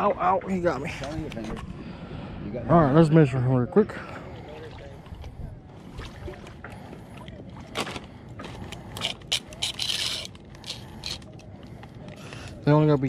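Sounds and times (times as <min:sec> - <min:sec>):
clicks and scrapes of handling: 0:07.8 - 0:12.4.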